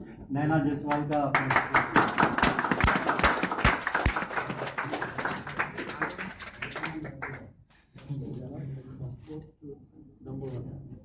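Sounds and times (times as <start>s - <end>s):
small crowd clapping: 0.8s - 8.1s.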